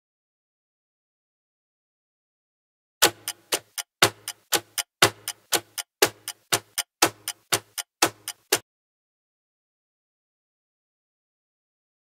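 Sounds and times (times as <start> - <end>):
clock-like timer ticks: 3.0 - 8.6.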